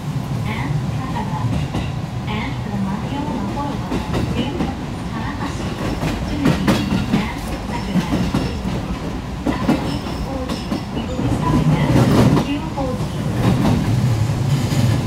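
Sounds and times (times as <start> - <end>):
train wheels rumbling on track: 0.0 - 15.0
wheels clacking over rail joints: 5.4 - 15.0.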